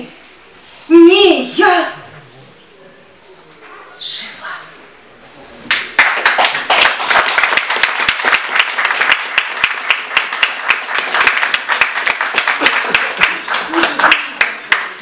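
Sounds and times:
audience applauding: 5.7 - 15.0.

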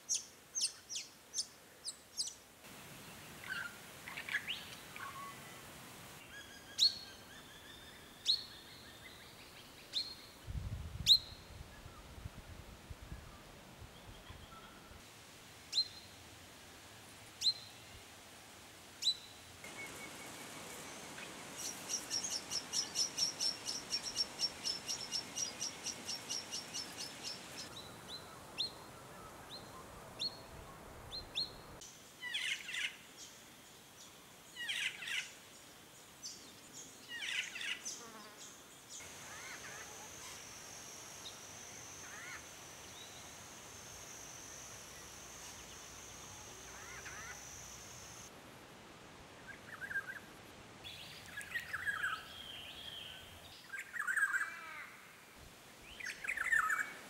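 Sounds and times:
high insect drone: 39.0 - 48.3
faint bird calls: 45.4 - 48.2.

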